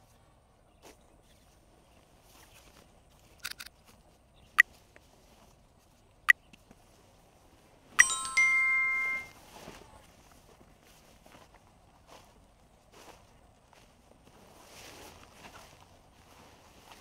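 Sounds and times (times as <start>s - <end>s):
notification bell chime: 8.0s - 9.4s.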